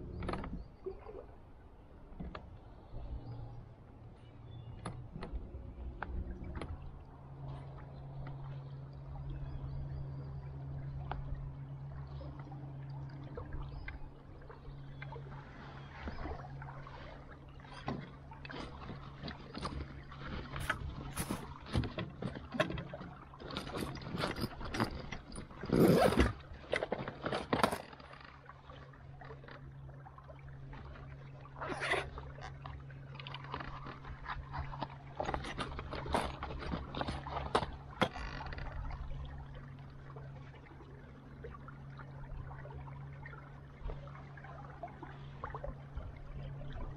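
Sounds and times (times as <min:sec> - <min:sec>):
knocks and splashes against metal hull: 0:12.4 - 0:30.1.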